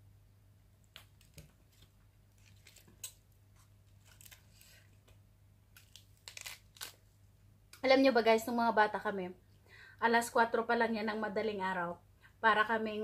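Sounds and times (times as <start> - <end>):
low steady hum: 0.0 - 13.0
fingers rustling on foil: 1.8 - 5.0, 5.8 - 7.0.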